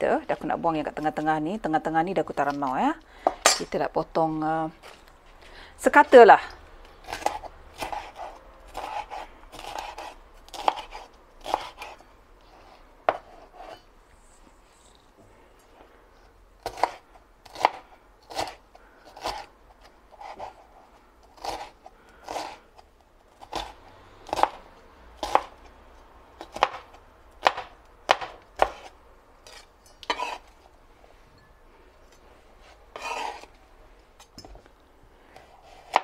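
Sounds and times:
knife chopping on cutting board: 7.1s - 12.0s, 16.6s - 18.6s, 26.4s - 28.9s.

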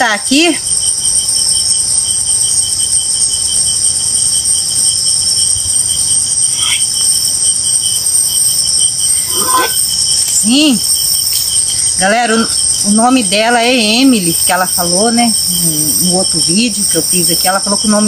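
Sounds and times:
crickets and insects chirping: 0.0s - 18.0s
garbled voice fragment: 9.2s - 9.8s.

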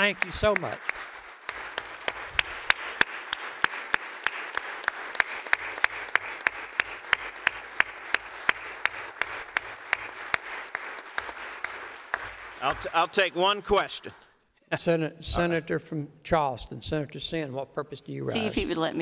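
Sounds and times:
crowd clapping: 0.0s - 14.2s
sharp evenly spaced claps: 0.0s - 14.3s.

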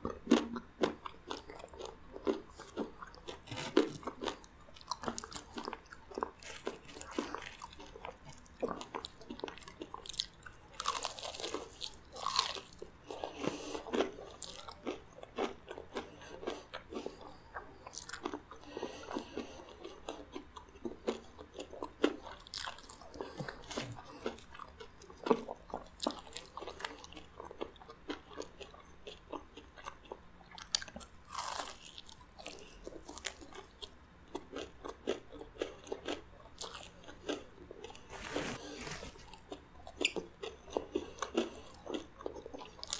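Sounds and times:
crunchy chewing of fried chicken: 0.0s - 42.9s.

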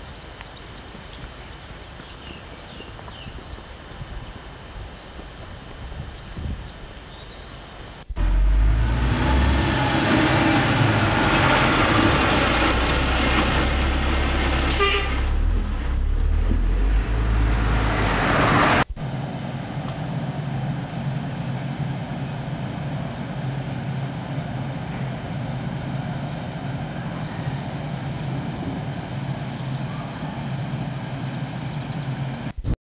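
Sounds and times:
vehicle engine rumble and road noise: 7.4s - 32.8s
low engine hum: 7.9s - 32.8s.

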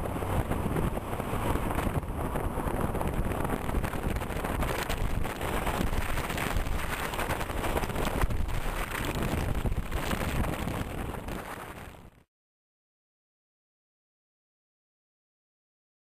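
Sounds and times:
vehicle road noise rumble: 0.0s - 12.2s
wind rushing over microphone: 0.0s - 12.2s.

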